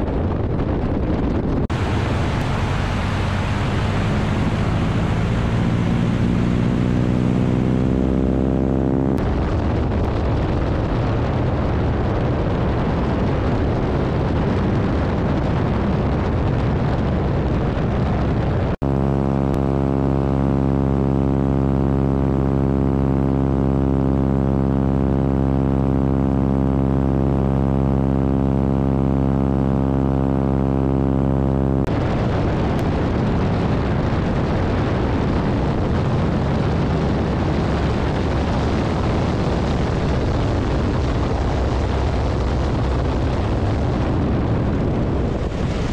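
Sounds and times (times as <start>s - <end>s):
wind rush on microphone: 0.0s - 45.9s
radial engine drone: 1.7s - 10.6s, 18.8s - 45.9s.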